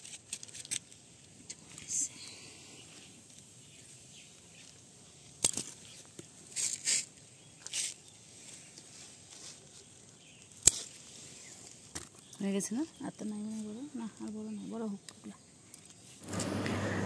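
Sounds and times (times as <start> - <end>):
leaves rustling: 0.0 - 15.0
stems snipped: 5.4 - 8.0, 10.4 - 11.0.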